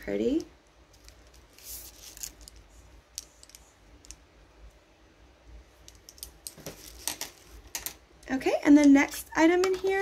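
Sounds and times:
makeup brushes clicking and tapping: 8.8 - 10.0.

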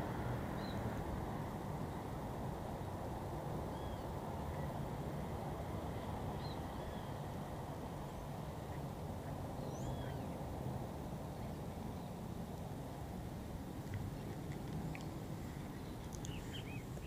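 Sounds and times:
faint bird chirps: 9.6 - 10.4, 15.6 - 17.0.

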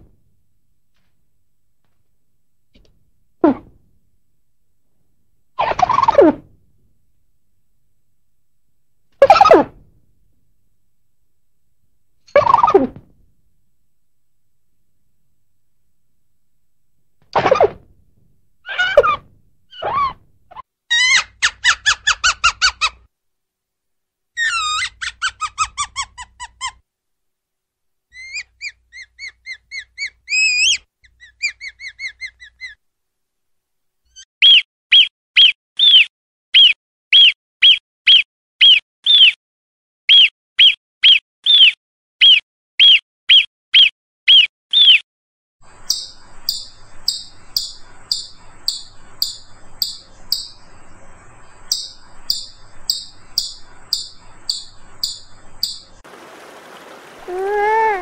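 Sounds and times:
squeaky whistles of ground squirrel: 18.7 - 20.2, 28.2 - 32.8
small rodent chirping: 28.2 - 32.8, 45.7 - 56.0
marmot alarm whistles: 34.4 - 39.4, 40.1 - 45.0, 45.8 - 50.6.

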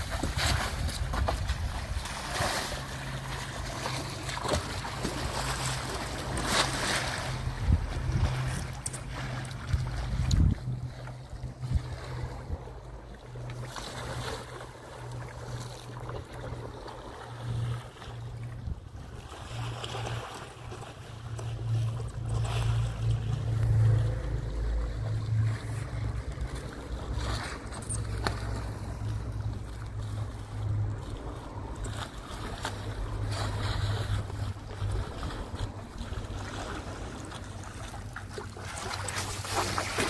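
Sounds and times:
wind buffeting microphone: 0.0 - 2.5, 4.5 - 13.0
small boat motor humming: 0.0 - 40.0.

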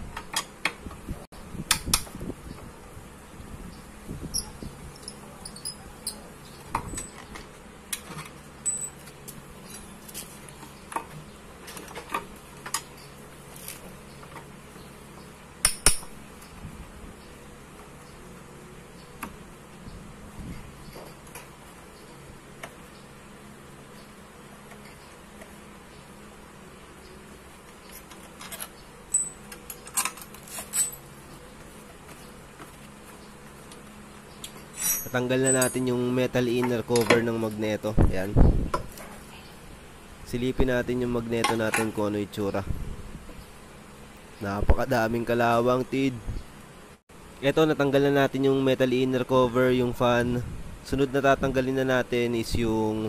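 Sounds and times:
metal tools clinking on engine parts: 4.3 - 13.2, 27.8 - 31.1, 34.4 - 37.6
wrench clinking on metal: 8.6 - 9.0, 28.4 - 31.0, 34.7 - 36.0.

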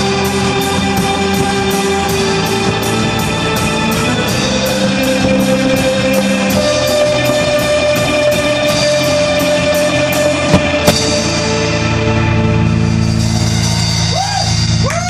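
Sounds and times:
rock band playing: 0.0 - 14.8
sharp drum hits: 10.5 - 11.4.

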